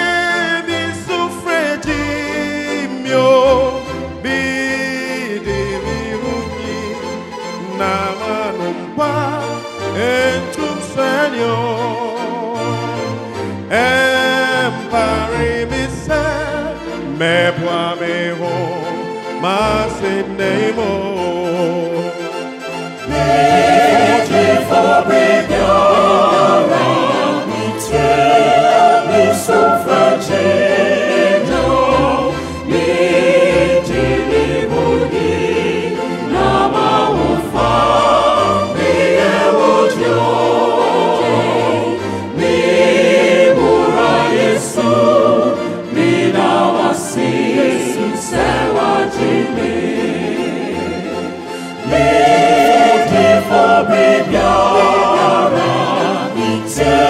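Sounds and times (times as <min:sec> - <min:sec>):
mixed choir singing: 0:13.6 - 0:22.1, 0:22.7 - 0:57.0.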